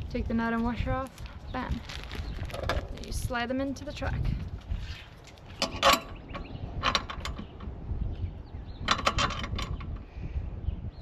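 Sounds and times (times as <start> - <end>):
metal hardware clicking and rattling: 5.2 - 7.8, 8.8 - 10.0.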